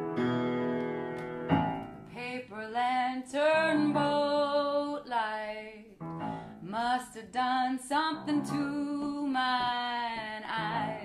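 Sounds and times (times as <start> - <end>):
keyboard chord: 0.0 - 2.0
woman singing with vibrato: 2.1 - 11.0.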